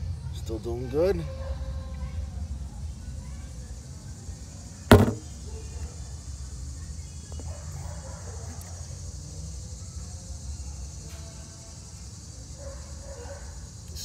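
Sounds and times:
phone handling rumble: 0:04.9 - 0:05.3
sharp knock: 0:04.9 - 0:05.3.

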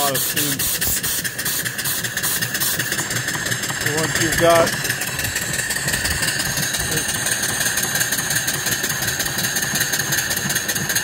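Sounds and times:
steam engine running: 0:00.0 - 0:11.0
steam hissing: 0:00.0 - 0:11.0.

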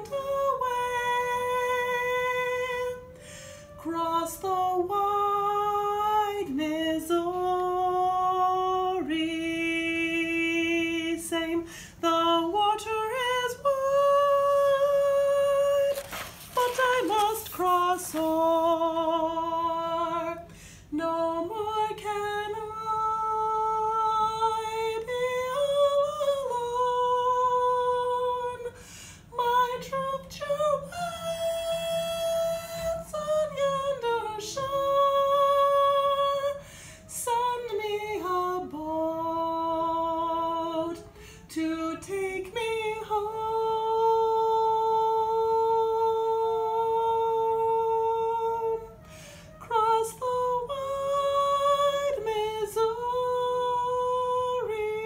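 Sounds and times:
woman singing unaccompanied: 0:00.0 - 0:55.0
singer breathing: 0:03.2 - 0:03.8, 0:11.6 - 0:12.0, 0:20.5 - 0:20.9, 0:28.8 - 0:29.3, 0:36.6 - 0:37.1, 0:41.1 - 0:41.5, 0:49.0 - 0:49.6.

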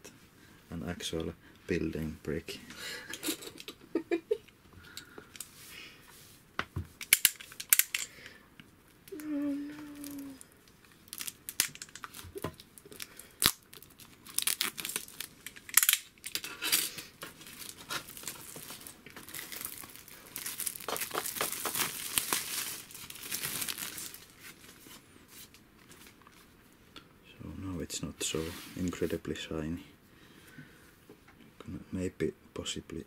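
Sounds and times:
plastic wrap crinkling and tearing: 0:09.0 - 0:26.5.

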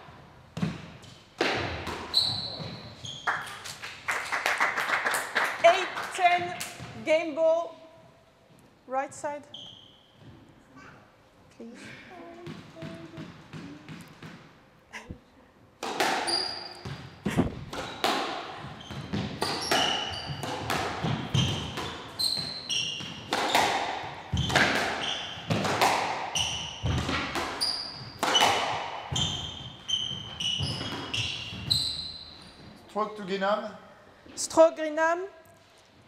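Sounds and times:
shoes squeaking on court floor: 0:00.6 - 0:03.8, 0:08.5 - 0:11.0, 0:16.1 - 0:33.0
squash ball cracking off rackets: 0:15.8 - 0:29.5
ball smacking walls: 0:15.8 - 0:31.7.

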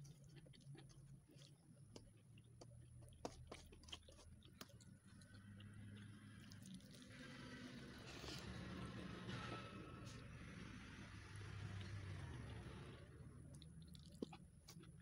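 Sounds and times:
chewing and mouth clicks: 0:00.0 - 0:07.0, 0:13.5 - 0:15.0.

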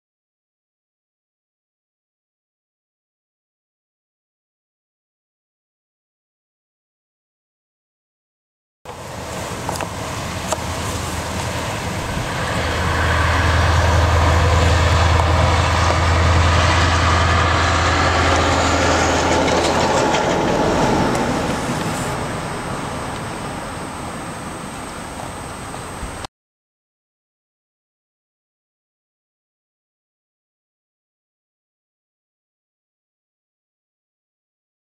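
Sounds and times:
diesel truck driving by: 0:08.9 - 0:26.3.

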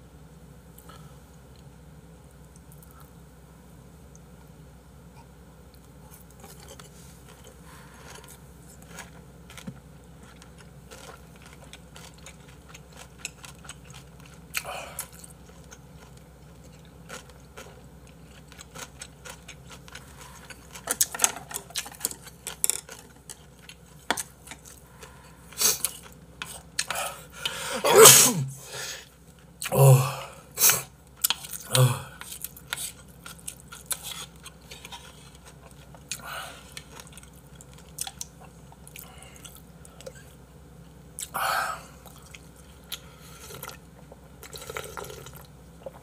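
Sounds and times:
chewing: 0:05.7 - 0:27.6, 0:31.2 - 0:40.4, 0:42.0 - 0:46.0.

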